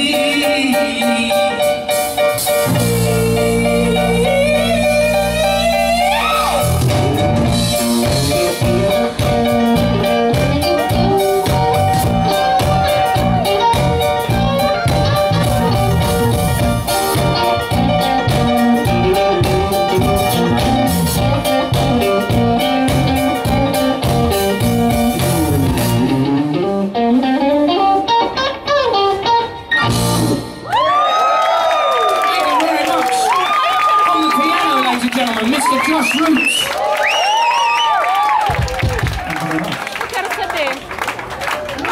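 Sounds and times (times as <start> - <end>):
electric guitar bending notes: 0.0 - 30.7
live rock band instrumental: 0.0 - 30.9.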